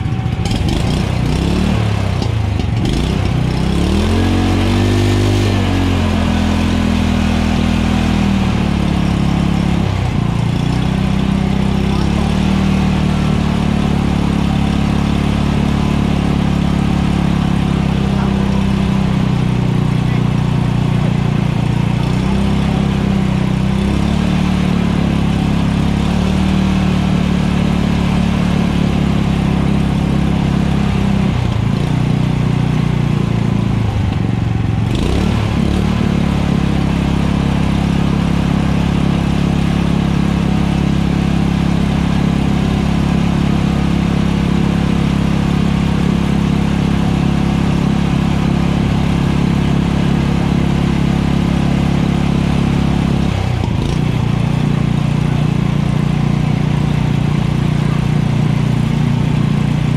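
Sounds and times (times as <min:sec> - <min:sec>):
pump engine running: 0:00.0 - 0:59.9.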